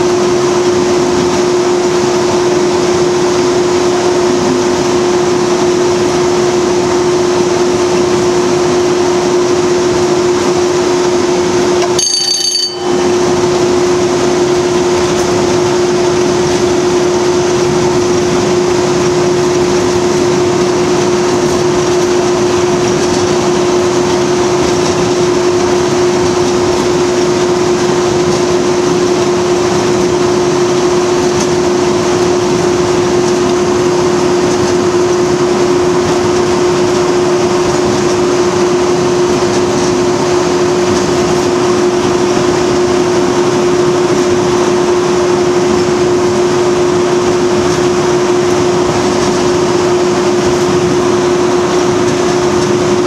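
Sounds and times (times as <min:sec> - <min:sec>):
diesel locomotive engine running: 0:00.0 - 0:53.0
strong steady tone: 0:11.6 - 0:22.7.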